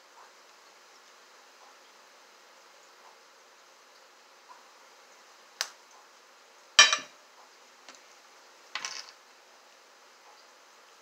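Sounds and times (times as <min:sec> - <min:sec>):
bottle knocking on table: 0:06.8 - 0:07.1.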